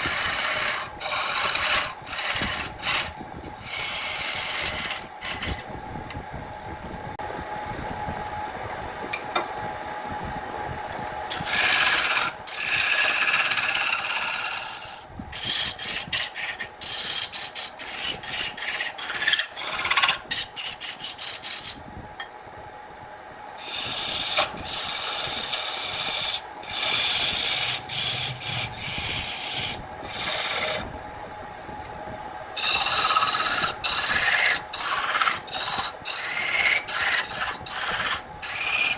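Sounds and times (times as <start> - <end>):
turning tool scraping wood: 0.0 - 5.7, 11.3 - 21.8, 23.6 - 30.9, 32.6 - 38.9
wood lathe humming: 0.0 - 5.7, 11.3 - 21.8, 23.6 - 30.9, 32.6 - 38.9.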